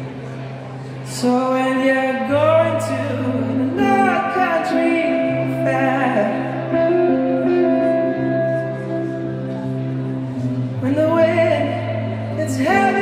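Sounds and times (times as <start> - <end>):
electric guitar: 0.0 - 13.0
person singing: 1.1 - 13.0
keyboard chords: 2.3 - 13.0.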